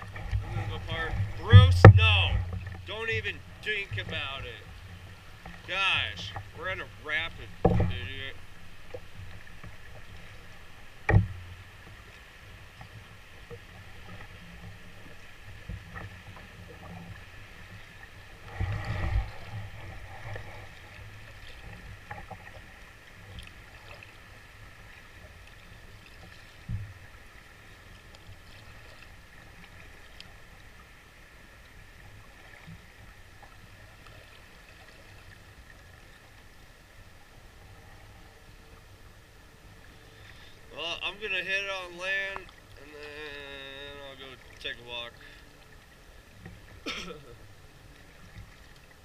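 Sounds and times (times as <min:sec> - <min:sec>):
water splashing against canoe hull: 0:00.0 - 0:30.6
sharp knocks: 0:01.5 - 0:02.6, 0:07.6 - 0:08.2.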